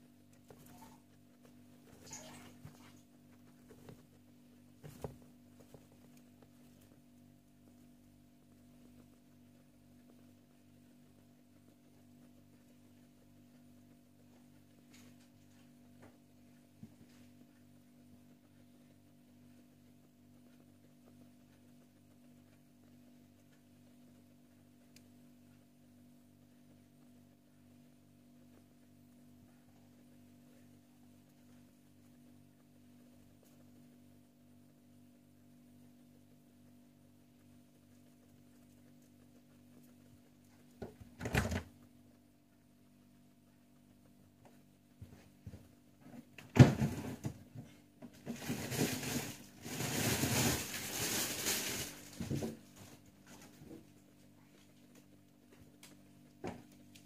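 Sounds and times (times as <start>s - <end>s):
guinea pig rustling in hay: 0.0s - 46.4s, 47.1s - 57.0s
faint pulsing low hum: 0.0s - 57.0s
guinea pig chewing: 0.0s - 57.0s.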